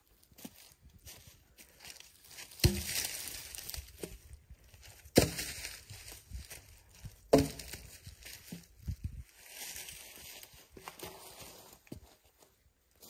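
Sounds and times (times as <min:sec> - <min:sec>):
scrape of bark and dry leaves: 0:01.1 - 0:04.2, 0:04.8 - 0:12.3
logs knocking together: 0:02.5 - 0:04.2, 0:05.1 - 0:05.8, 0:07.2 - 0:08.8.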